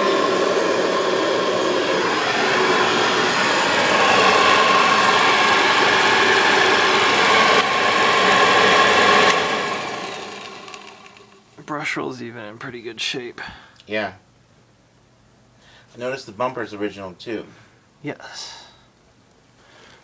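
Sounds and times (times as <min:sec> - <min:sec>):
vacuum cleaner motor whine: 0:00.0 - 0:11.6.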